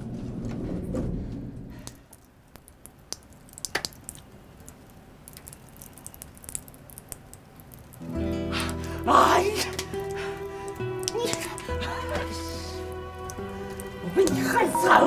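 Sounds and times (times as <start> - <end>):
background music: 8.0 - 15.0.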